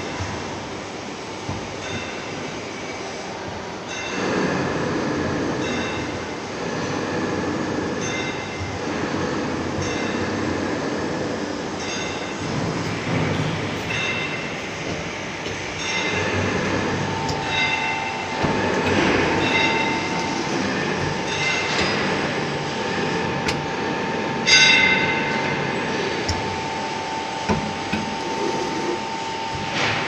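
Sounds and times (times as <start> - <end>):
machine hum: 0.0 - 30.0
machine whine: 0.0 - 30.0.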